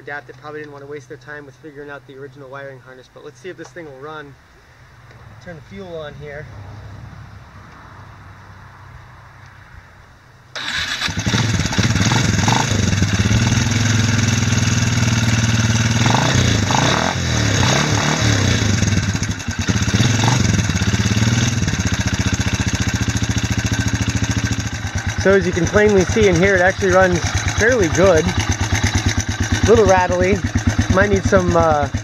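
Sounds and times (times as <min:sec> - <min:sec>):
rattly engine idling: 0:10.6 - 0:16.0, 0:18.7 - 0:32.0
quad engine starting and revving: 0:10.6 - 0:32.0.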